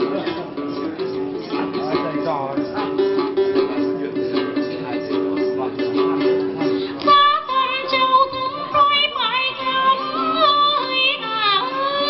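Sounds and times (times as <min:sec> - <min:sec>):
plucked lute: 0:00.0 - 0:12.0
woman singing long notes: 0:06.9 - 0:12.0.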